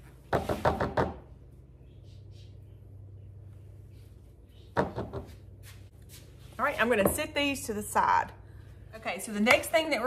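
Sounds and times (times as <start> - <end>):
low steady hum: 1.2 - 10.0.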